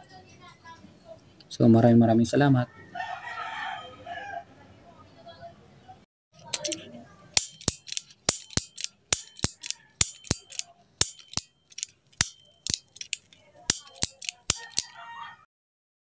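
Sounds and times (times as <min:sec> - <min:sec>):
high metallic ring: 0:07.4 - 0:13.0.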